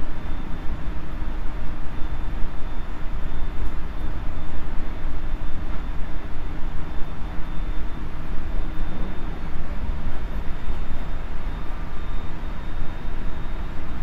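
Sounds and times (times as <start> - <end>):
faint high whine: 0.0 - 14.0
train wheels rumbling on rails: 8.1 - 11.8.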